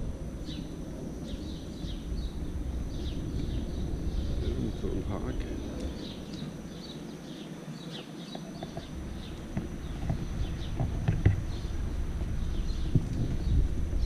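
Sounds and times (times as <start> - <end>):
low rumble of riding noise: 0.0 - 14.0
small birds chirping: 0.0 - 14.0.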